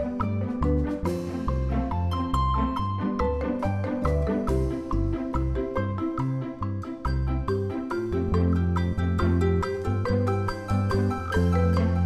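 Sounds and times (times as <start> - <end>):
instrumental music: 0.0 - 12.0.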